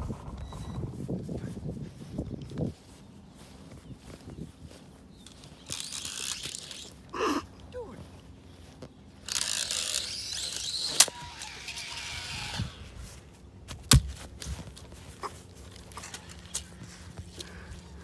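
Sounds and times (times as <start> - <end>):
rustling on grass: 0.0 - 18.0.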